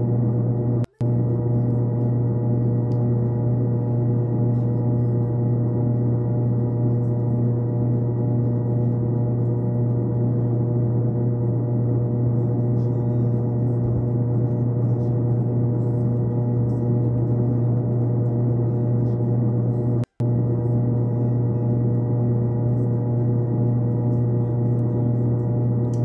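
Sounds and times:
low drone of held tones: 0.0 - 26.0.

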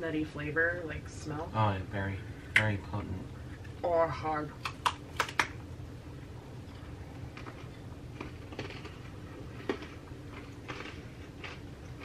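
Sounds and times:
chewing crunches: 6.7 - 12.0.

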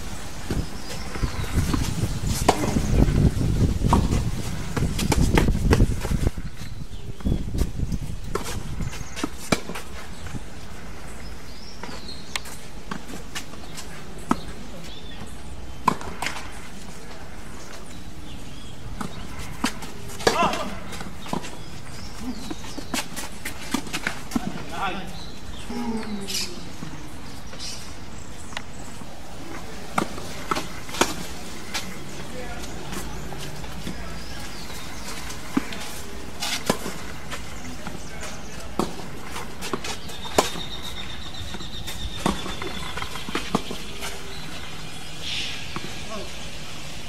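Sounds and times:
wind on microphone: 0.0 - 9.2
outdoor background noise: 0.0 - 47.0
tennis ball struck by racket: 0.5 - 3.0, 19.0 - 21.7, 29.6 - 32.2, 32.8 - 44.7.

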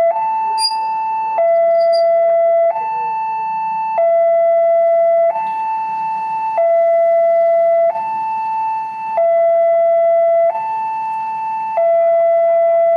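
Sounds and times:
level-crossing alarm two tones: 0.0 - 2.7.

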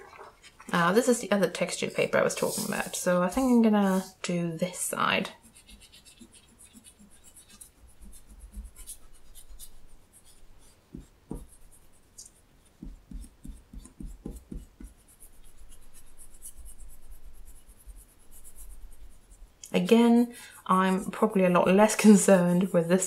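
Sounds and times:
eraser scratching on paper: 1.8 - 4.2, 5.2 - 19.4.

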